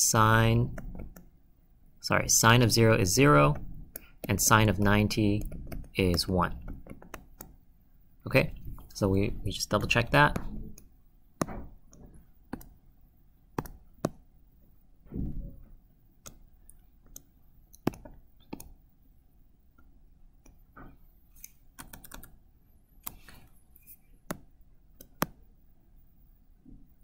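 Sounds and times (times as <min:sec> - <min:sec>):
computer mouse clicks: 0:06.8 - 0:07.6, 0:10.4 - 0:12.8, 0:13.6 - 0:14.2, 0:16.2 - 0:18.8, 0:21.4 - 0:22.4, 0:23.0 - 0:23.5, 0:24.2 - 0:25.4
soft low thump: 0:15.0 - 0:15.7.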